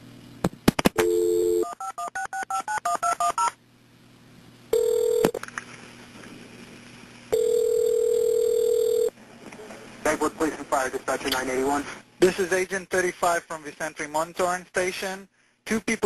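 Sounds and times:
dial tone: 0:01.0 - 0:03.5, 0:04.7 - 0:05.4, 0:07.3 - 0:09.1
telephone ringing tone: 0:01.0 - 0:03.5, 0:04.7 - 0:05.4, 0:07.3 - 0:09.2.

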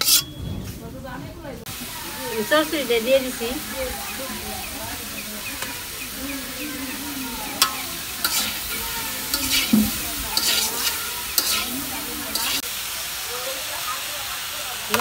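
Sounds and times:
metal spatula scraping a wok: 0:00.0 - 0:00.4, 0:07.6 - 0:12.7
greens sizzling in a wok: 0:01.6 - 0:15.0.

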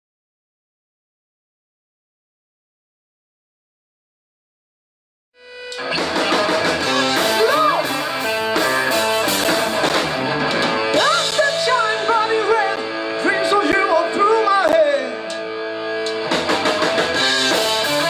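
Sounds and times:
live rock band playing: 0:05.4 - 0:18.0.

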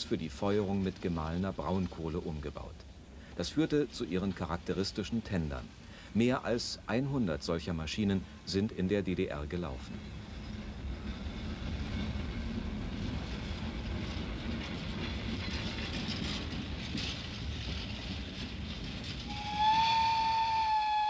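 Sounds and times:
train wheels rumbling on rails: 0:00.0 - 0:21.0
locomotive whistle long note: 0:19.3 - 0:21.0.

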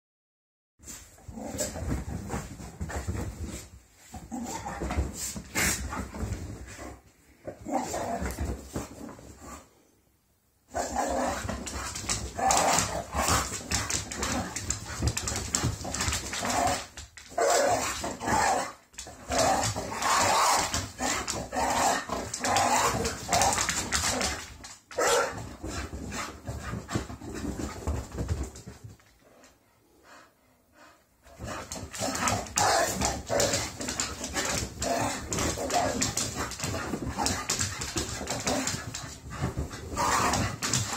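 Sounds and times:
dogs barking: 0:25.0 - 0:25.3.

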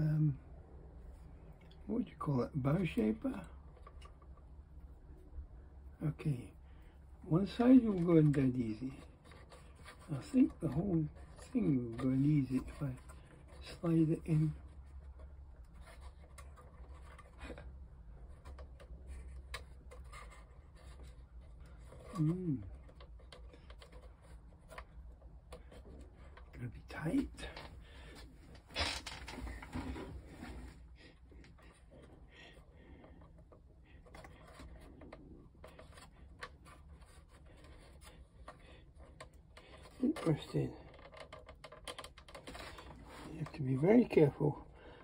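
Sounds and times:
faint wood scratching: 0:00.0 - 0:45.0
plywood parts clicking and rubbing: 0:02.6 - 0:45.0.

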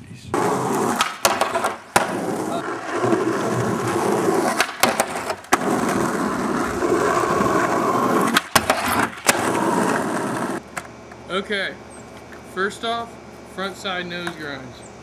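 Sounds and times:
skateboard clacks: 0:00.3 - 0:11.2
skateboard wheels rolling: 0:00.3 - 0:11.4.

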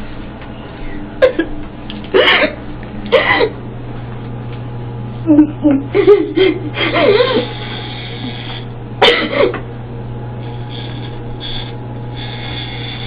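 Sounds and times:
woman sobbing: 0:05.2 - 0:07.7
electric hair clippers buzzing: 0:05.8 - 0:13.0.

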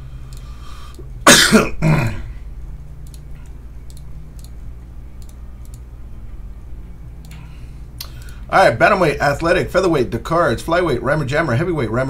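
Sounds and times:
low steady hum: 0:00.0 - 0:12.0
person coughing: 0:01.2 - 0:02.4
faint computer clicks: 0:03.0 - 0:05.9, 0:07.2 - 0:08.4.

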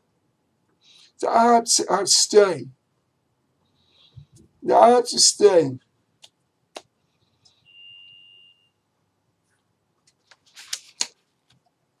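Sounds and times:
high-pitched beep: 0:07.7 - 0:08.7.

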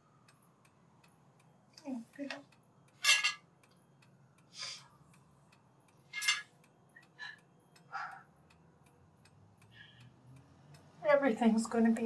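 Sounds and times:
clock ticking: 0:00.0 - 0:12.0.

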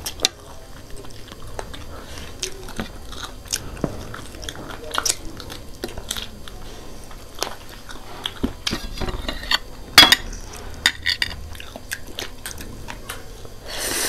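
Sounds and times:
chewing and biting food: 0:00.0 - 0:13.6
utensils clicking on ceramic plates: 0:07.4 - 0:13.2.

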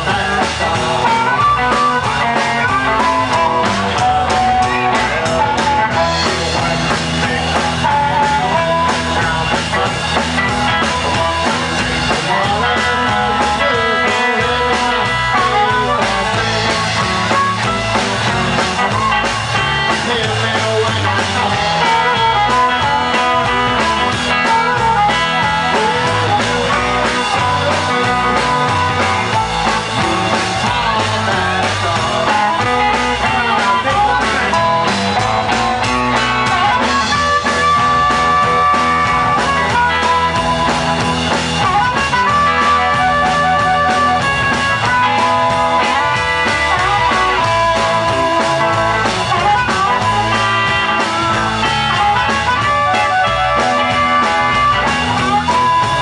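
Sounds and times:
amplified harmonica: 0:00.0 - 0:56.0
drum kit: 0:00.0 - 0:56.0
electric guitars: 0:00.0 - 0:56.0.

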